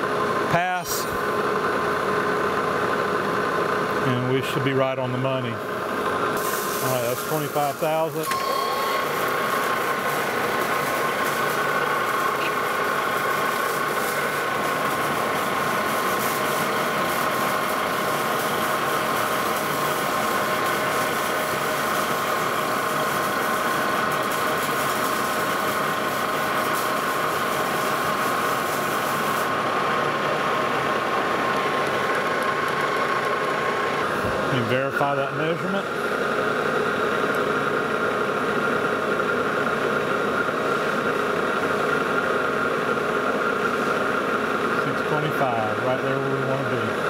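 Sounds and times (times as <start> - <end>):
lathe whine: 0.0 - 47.0
cutting hiss: 6.4 - 29.6.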